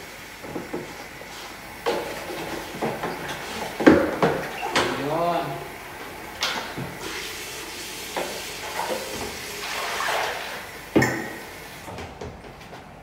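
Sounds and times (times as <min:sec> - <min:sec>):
tap water splashing into tray: 0:08.1 - 0:11.5.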